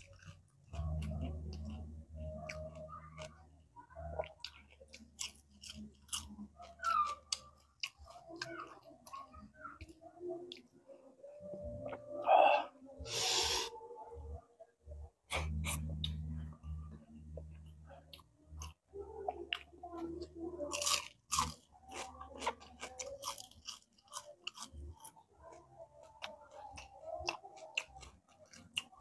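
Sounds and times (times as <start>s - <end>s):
chewing and crunching fried fish: 0.0s - 12.7s, 15.3s - 29.0s
low steady hum: 10.3s - 22.8s.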